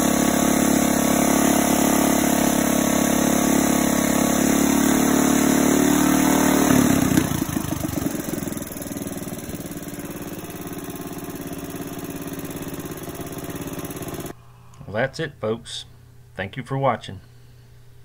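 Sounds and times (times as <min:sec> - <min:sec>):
single-cylinder race engine running: 0:00.0 - 0:14.4.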